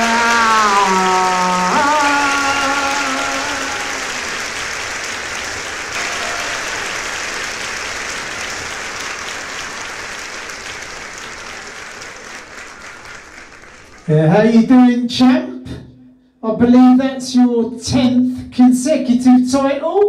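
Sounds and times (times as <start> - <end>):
man shouting into microphone: 0.0 - 4.2
applause: 0.0 - 14.7.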